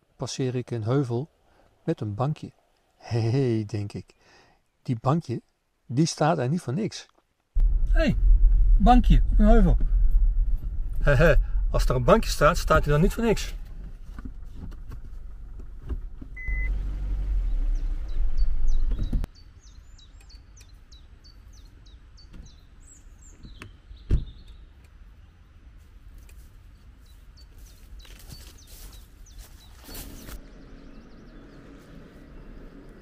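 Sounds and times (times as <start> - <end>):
car engine rumbling: 7.6 - 19.3, 29.9 - 33.0
short beep: 16.4 - 16.8
small birds chirping: 17.4 - 33.0.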